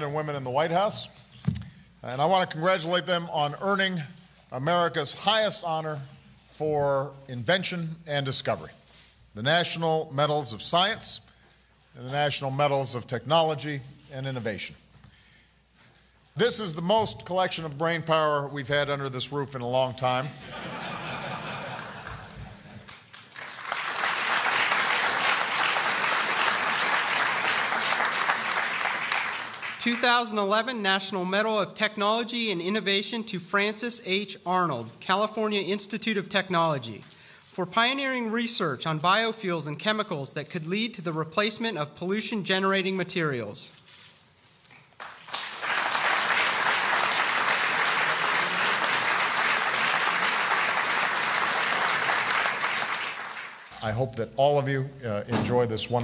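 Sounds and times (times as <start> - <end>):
large audience applauding: 21.7 - 29.8, 45.0 - 53.7.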